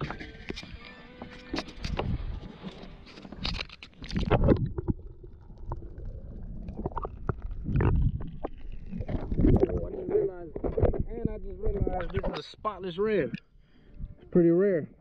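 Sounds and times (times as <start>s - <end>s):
water splashing: 0.0s - 11.1s
underwater gurgling: 3.5s - 12.4s.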